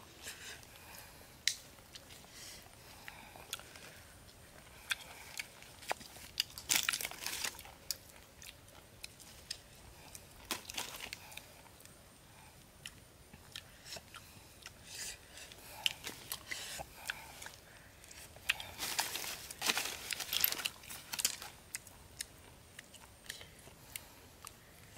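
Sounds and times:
person chewing and sucking snails: 1.5s - 24.9s.

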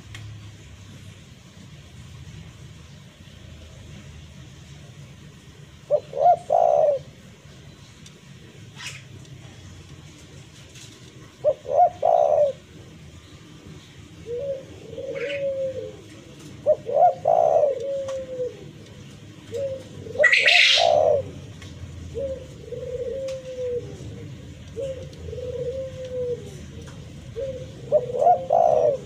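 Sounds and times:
dove cooing: 5.7s - 7.5s, 8.5s - 29.0s.

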